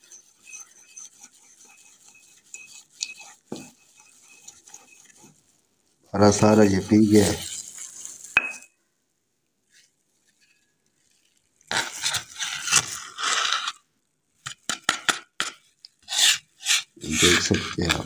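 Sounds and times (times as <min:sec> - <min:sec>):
pestle grinding in mortar: 0:00.0 - 0:05.4.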